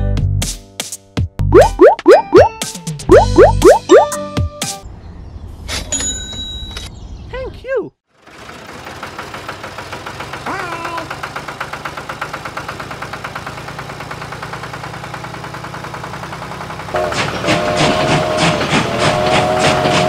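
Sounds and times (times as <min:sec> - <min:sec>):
tractor engine chugging: 0:08.3 - 0:20.0
train horn: 0:17.0 - 0:20.0
train wheels clickety-clack: 0:17.0 - 0:20.0.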